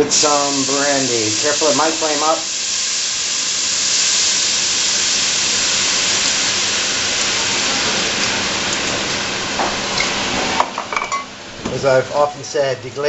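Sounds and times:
liquid hissing and sizzling in a pot: 0.0 - 10.7.

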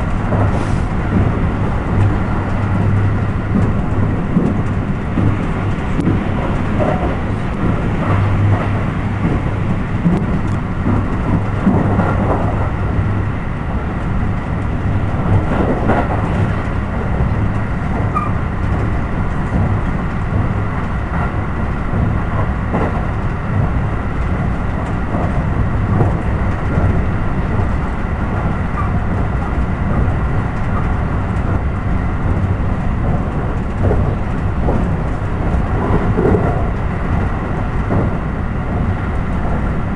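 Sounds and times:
train wheels on rails: 0.0 - 39.9.

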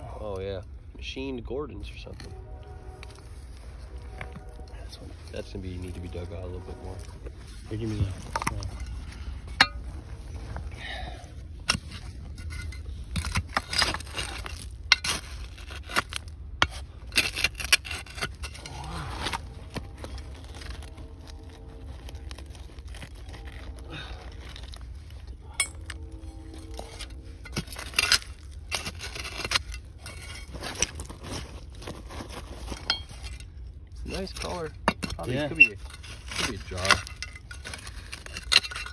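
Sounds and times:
tool scraping through dirt: 11.3 - 38.9.

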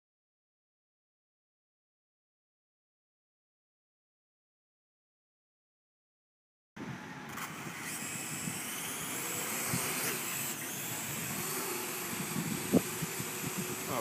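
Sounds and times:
drone rotors whirring: 6.8 - 14.0.

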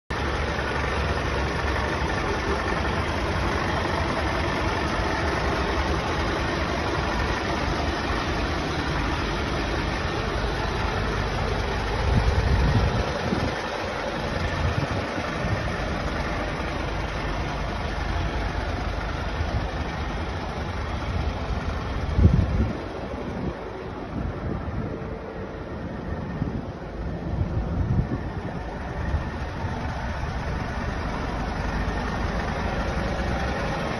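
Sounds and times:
diesel engine idling: 0.1 - 33.9
wind buffeting microphone: 21.6 - 25.2, 26.2 - 30.0.

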